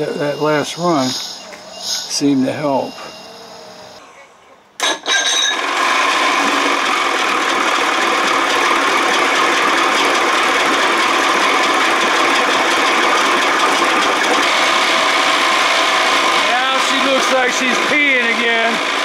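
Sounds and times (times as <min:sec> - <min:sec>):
outboard engine running: 0:05.5 - 0:19.0.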